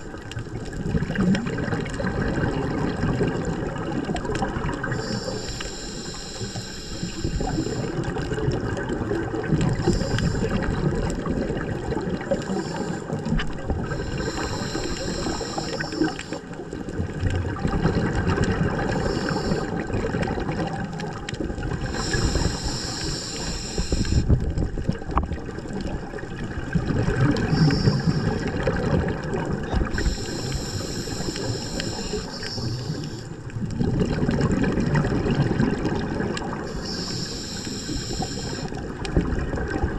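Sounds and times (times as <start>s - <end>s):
bubbling exhaled air: 0.0s - 39.9s
hissing regulator inhalation: 4.9s - 8.1s, 9.8s - 10.8s, 12.2s - 16.5s, 18.8s - 19.8s, 21.8s - 24.3s, 27.4s - 28.5s, 29.9s - 33.4s, 36.6s - 38.8s.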